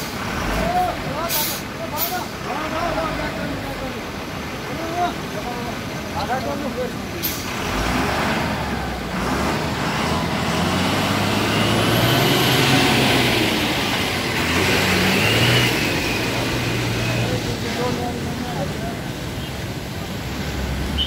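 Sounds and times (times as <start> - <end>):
truck diesel engine under load: 0.0 - 21.0.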